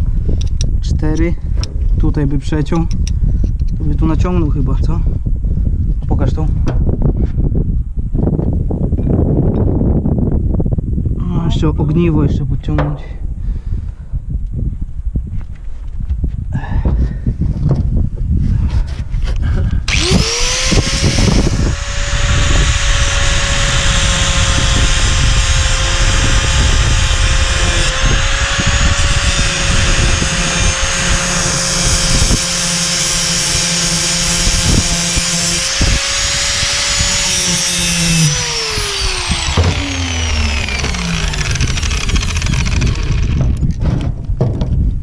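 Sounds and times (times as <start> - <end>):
sharp knocks: 12.7 - 13.3, 39.5 - 39.9, 40.8 - 44.8
angle grinder cutting steel: 19.9 - 43.6
grinder winding down whine: 19.9 - 43.6.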